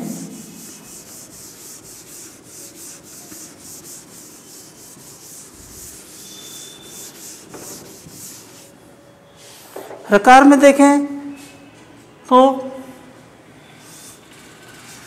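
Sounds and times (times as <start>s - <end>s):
duster wiping chalkboard: 0.0s - 8.8s, 13.8s - 15.0s.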